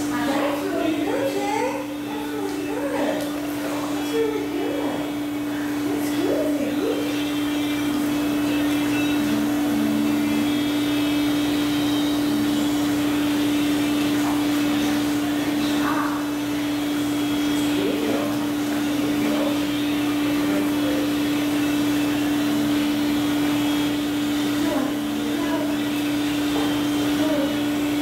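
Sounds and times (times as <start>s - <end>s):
water rushing: 0.0s - 8.7s
pump motor droning: 0.0s - 28.0s.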